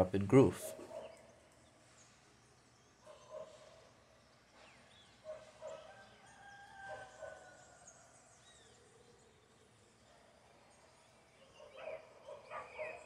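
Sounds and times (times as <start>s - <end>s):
bird chirps: 0.0s - 13.0s
low bird calls: 10.1s - 13.0s.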